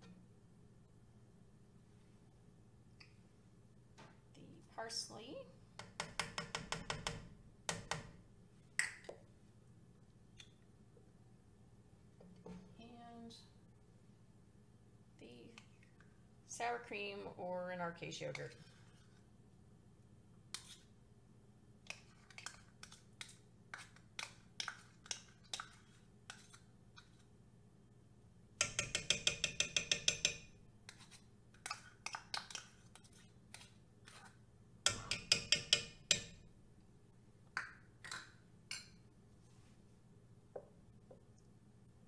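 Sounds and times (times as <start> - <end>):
rapid spoon clinking: 28.6 - 30.5
spoon tapping cup: 28.6 - 30.5, 34.9 - 36.4.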